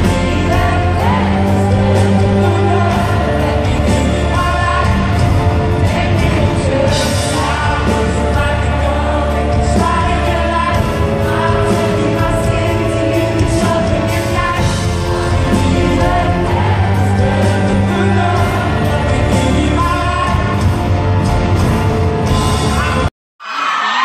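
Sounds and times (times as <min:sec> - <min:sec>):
man singing lead vocals: 0:00.0 - 0:21.3, 0:22.2 - 0:23.1
backing singers: 0:00.0 - 0:21.6
drums: 0:00.0 - 0:24.0.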